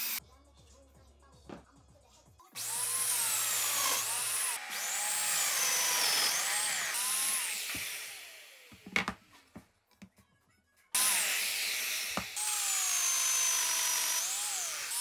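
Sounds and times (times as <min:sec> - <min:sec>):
joiner motor whining: 0:02.6 - 0:09.0, 0:11.0 - 0:15.0.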